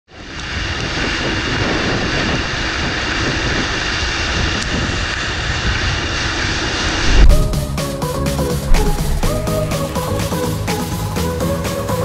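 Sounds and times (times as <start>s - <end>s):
wind buffeting microphone: 0.2s - 8.0s, 8.6s - 10.3s.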